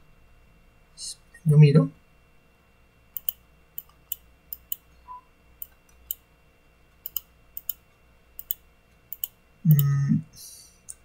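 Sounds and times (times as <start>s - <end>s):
computer mouse clicking: 3.2s - 4.8s, 5.6s - 6.2s, 7.0s - 7.8s, 8.4s - 9.9s.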